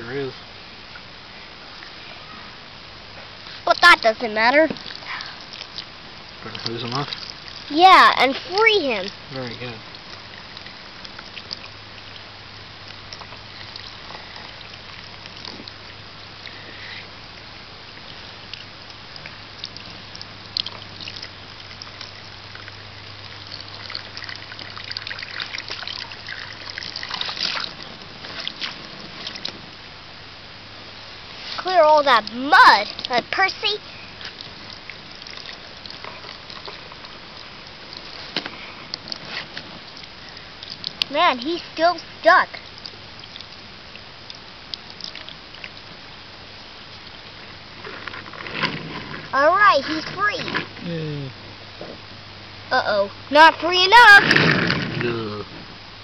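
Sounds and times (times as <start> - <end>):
steady hiss: 0.0 - 56.0
water splashing and dripping: 3.4 - 16.6, 17.3 - 29.7, 31.3 - 47.2
water trickling from hose onto mud: 3.4 - 29.6, 31.2 - 50.8.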